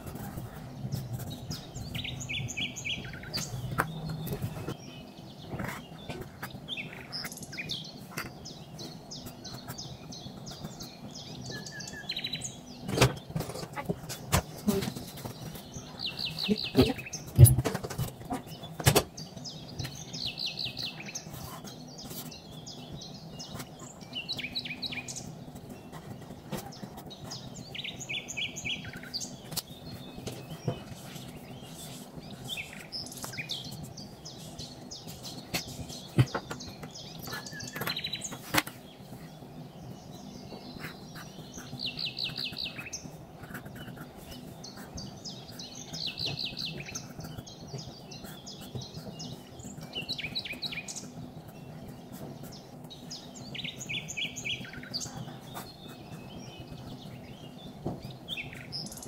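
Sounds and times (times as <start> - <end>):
marker squeaking on paper: 40.7 - 45.6, 46.2 - 49.8.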